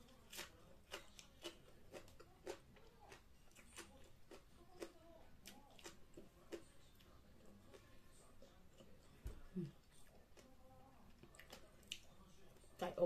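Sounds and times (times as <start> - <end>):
person chewing and eating: 0.0 - 12.7.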